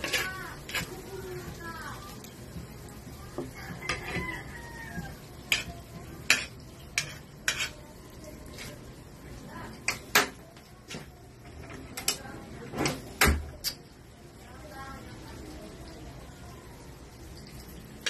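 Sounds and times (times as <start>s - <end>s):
metal spoon scraping a wok: 0.0s - 1.1s, 5.5s - 5.7s, 6.3s - 8.8s.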